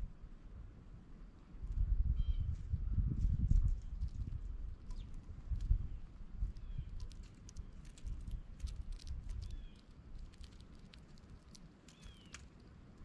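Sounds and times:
birds pecking seeds: 3.8s - 13.0s.

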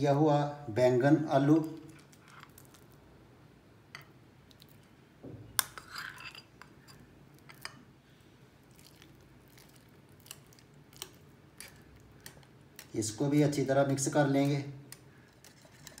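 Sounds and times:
spoon scraping mash in glass bowl: 5.6s - 7.8s.

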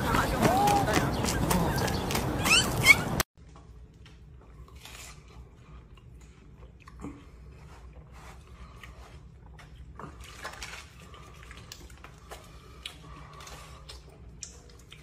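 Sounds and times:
short rising squeaks: 2.3s - 3.2s
deer chewing watermelon: 4.2s - 15.0s.

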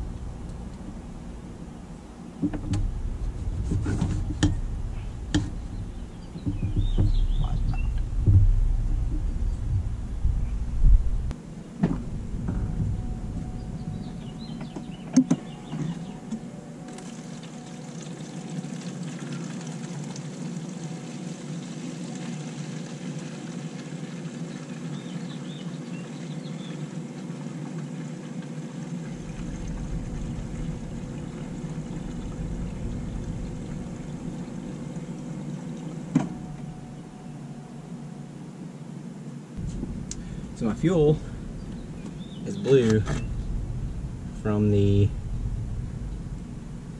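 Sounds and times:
fuel flowing through line: 0.0s - 38.6s, 39.4s - 46.9s
electric fuel pump running: 11.8s - 37.2s.

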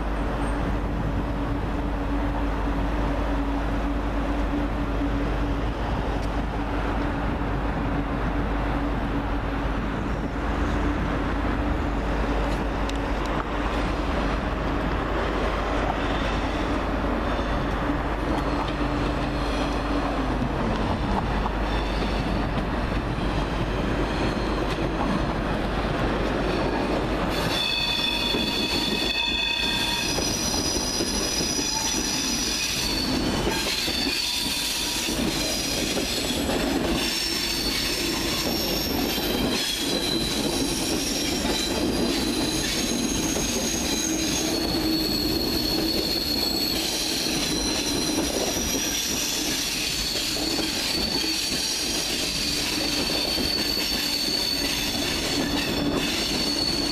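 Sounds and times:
train rumble: 0.0s - 56.9s
train wheel squeal: 15.8s - 20.2s, 21.4s - 25.3s, 26.4s - 56.9s.

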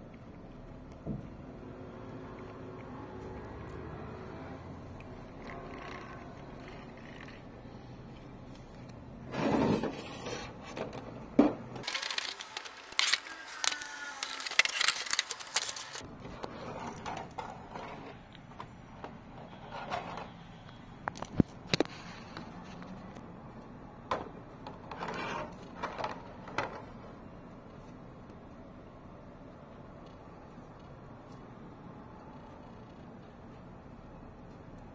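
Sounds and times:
toy packaging scraping and crackling: 11.8s - 20.5s.

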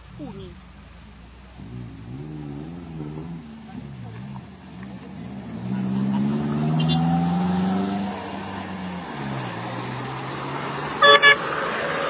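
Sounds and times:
car engine running: 0.0s - 11.4s
car horn toots: 6.7s - 7.2s, 11.0s - 11.6s.

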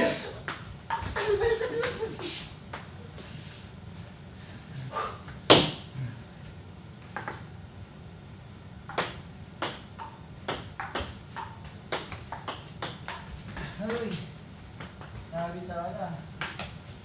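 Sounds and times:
table tennis ball hits: 0.4s - 1.2s, 7.1s - 7.5s, 8.8s - 14.2s, 14.8s - 15.6s.

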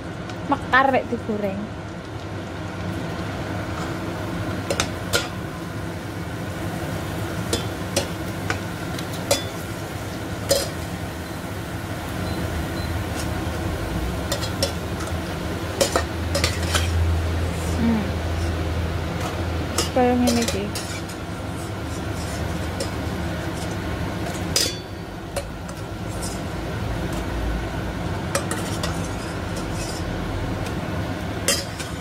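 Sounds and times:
oil sizzling: 0.0s - 32.0s
utensils clinking against pot: 7.5s - 9.6s, 10.5s - 10.8s, 14.3s - 15.1s, 15.8s - 17.0s, 19.2s - 26.4s, 28.3s - 30.1s, 31.5s - 32.0s.

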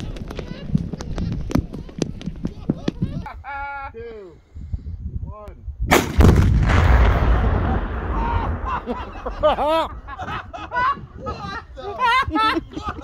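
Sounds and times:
explosion crack and deep boom: 5.9s - 11.2s.

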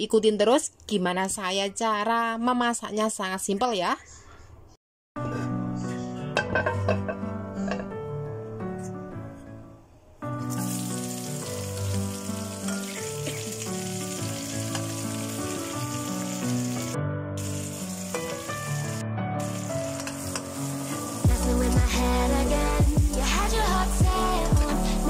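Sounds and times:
background music: 5.2s - 25.0s
food sizzling in hot oil: 10.4s - 25.0s.

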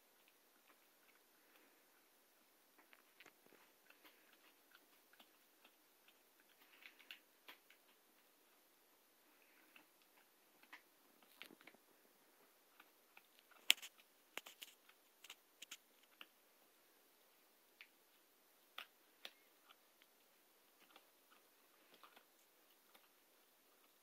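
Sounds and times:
puppy gnawing a hard chew: 2.8s - 8.6s, 18.6s - 24.0s.

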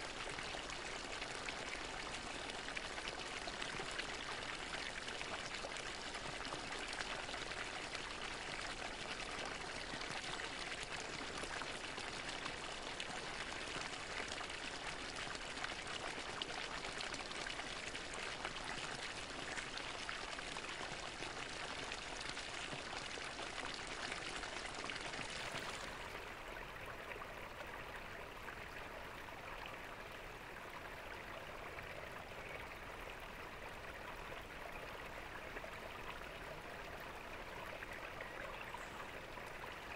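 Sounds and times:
fountain water splashing: 22.0s - 39.9s.

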